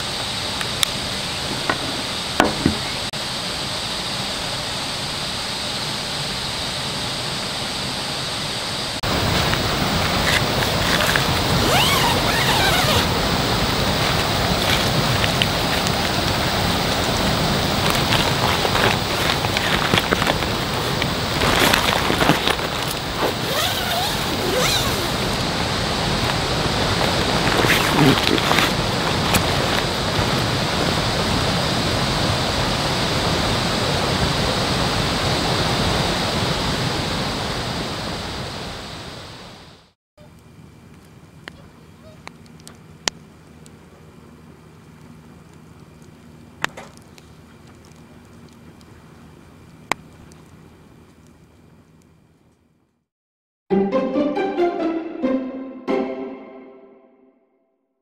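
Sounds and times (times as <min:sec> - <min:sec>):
steady rushing noise: 0:00.0 - 0:39.8.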